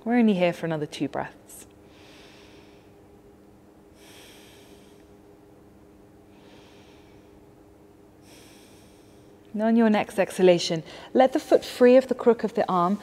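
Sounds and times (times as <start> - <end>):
faint steady hum: 0.0 - 13.0
woman breathing slowly: 1.8 - 3.2, 3.8 - 5.5, 6.2 - 9.5, 10.8 - 11.2.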